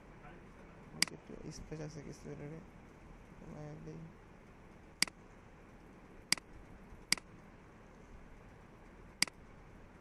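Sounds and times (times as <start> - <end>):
faint steady hiss: 0.0 - 10.0
computer mouse clicks: 6.3 - 7.3.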